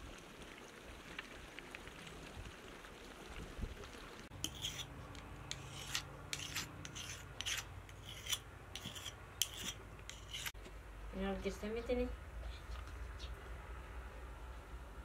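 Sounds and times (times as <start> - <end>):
knife scraping on sharpening stone: 4.4 - 4.9, 5.5 - 10.6.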